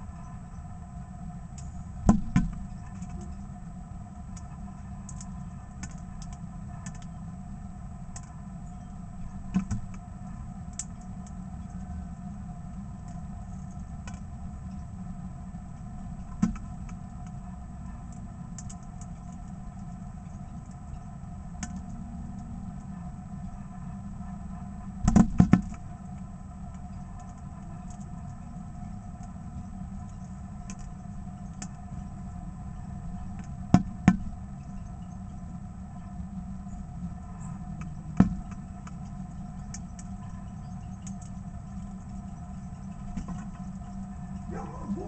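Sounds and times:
low mechanical hum: 0:00.0 - 0:45.0.

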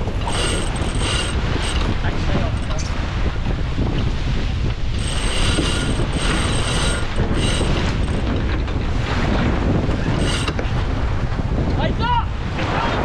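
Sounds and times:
wind buffeting microphone: 0:00.0 - 0:13.0
lines whirring through blocks: 0:00.2 - 0:01.9, 0:05.0 - 0:08.3, 0:10.1 - 0:10.6.

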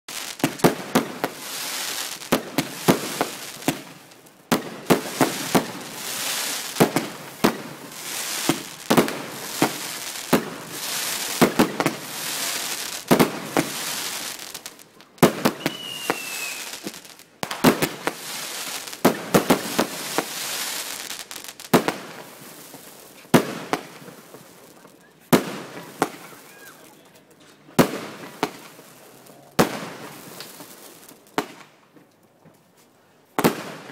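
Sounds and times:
fireworks bangs: 0:00.1 - 0:31.7, 0:33.4 - 0:33.9
fireworks crackling and hissing: 0:00.1 - 0:33.9
falling whistle: 0:15.6 - 0:16.7.

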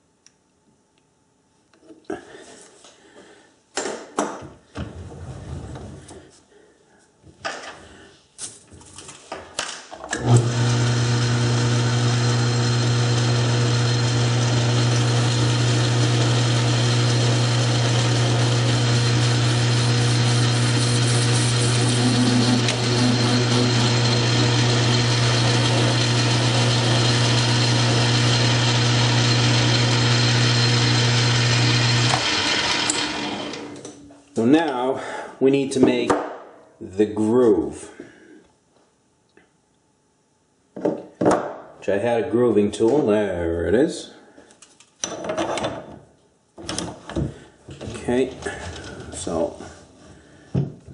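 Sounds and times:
metal lathe running: 0:10.2 - 0:33.8.

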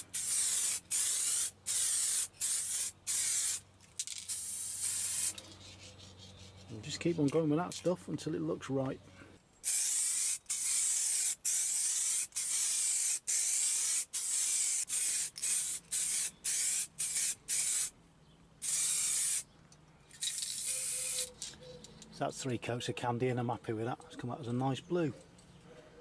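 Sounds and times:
spray paint can hissing: 0:00.0 - 0:06.0, 0:09.6 - 0:17.9, 0:18.6 - 0:19.5, 0:20.2 - 0:21.4.

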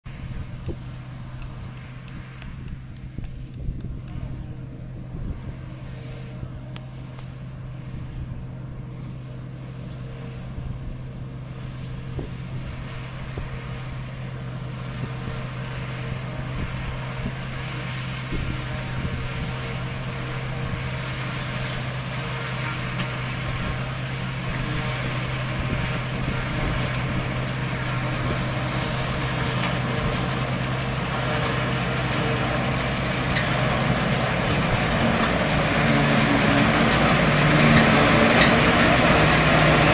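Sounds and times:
constant low hum: 0:00.1 - 0:39.9
forage chopper mechanical drone: 0:00.1 - 0:39.9.

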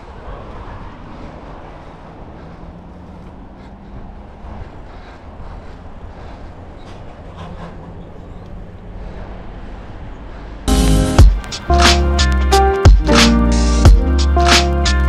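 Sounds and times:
bicycle tyres rolling on road: 0:00.0 - 0:10.7.

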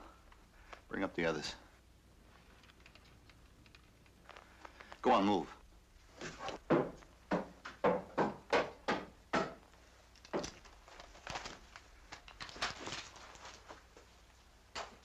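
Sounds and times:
knocks and shuffles: 0:01.8 - 0:08.6
footsteps on wooden boards: 0:06.2 - 0:09.6.

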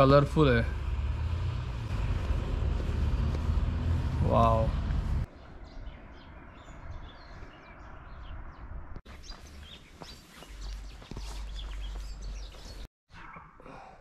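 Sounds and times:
small birds chirping: 0:04.6 - 0:13.6.

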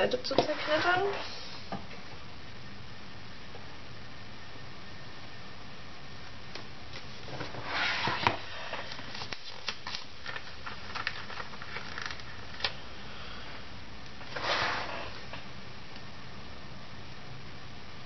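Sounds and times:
paper rustling: 0:06.9 - 0:12.8.

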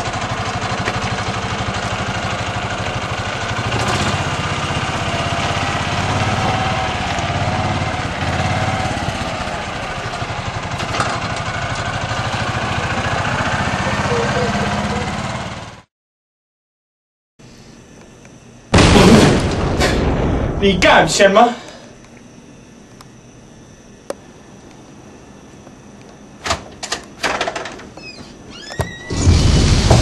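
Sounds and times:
small engine putter: 0:00.0 - 0:15.8.

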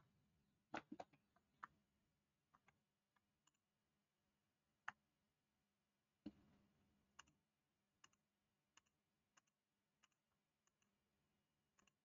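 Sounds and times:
computer mouse clicks: 0:07.2 - 0:07.4, 0:08.0 - 0:11.0, 0:11.8 - 0:12.0.

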